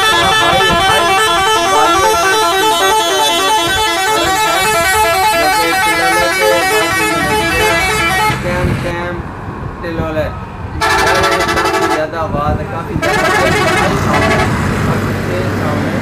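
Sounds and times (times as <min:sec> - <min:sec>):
multi-tone musical bus horn: 0:00.0 - 0:08.7, 0:10.8 - 0:12.1, 0:13.0 - 0:14.6.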